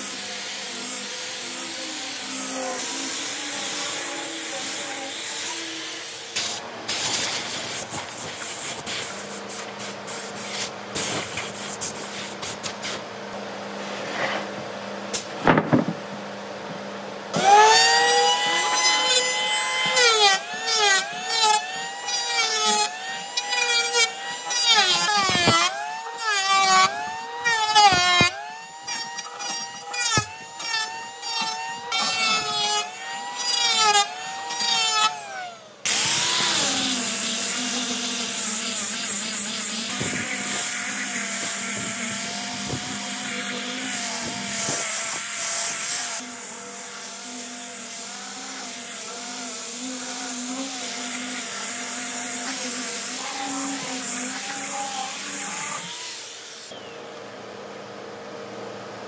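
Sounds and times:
electric hand planer whining: 0.0s - 6.4s, 17.3s - 57.0s
angle grinder sanding wood: 0.0s - 13.1s, 17.3s - 56.8s.

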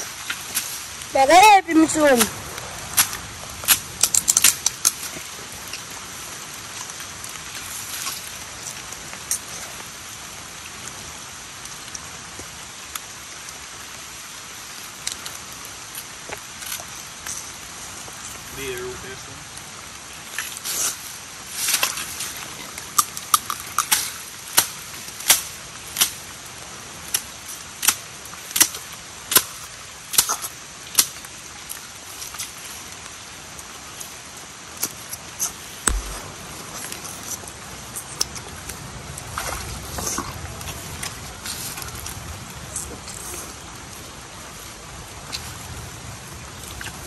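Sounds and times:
rain hissing: 0.0s - 47.0s
machete chopping into wet soil: 28.6s - 29.5s, 35.8s - 36.4s.

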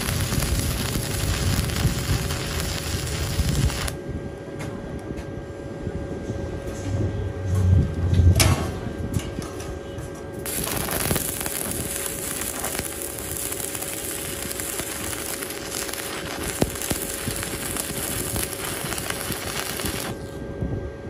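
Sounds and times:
welding arc crackling and sizzling: 0.0s - 4.0s, 10.4s - 20.4s.

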